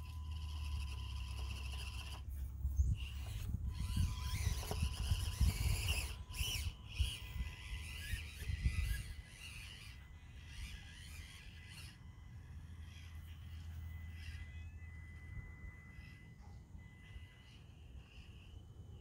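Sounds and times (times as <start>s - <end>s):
electric motor and gears whining: 0.0s - 19.0s
wind rumbling on microphone: 2.4s - 11.2s.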